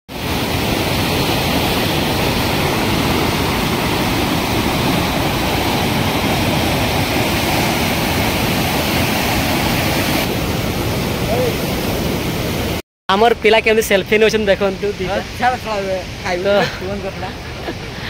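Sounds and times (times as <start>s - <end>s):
river rushing through rapids: 0.1s - 12.8s.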